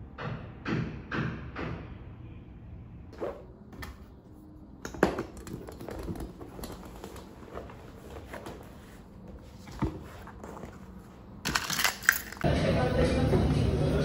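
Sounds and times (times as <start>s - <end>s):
objects tapping and knocking: 4.8s - 7.9s.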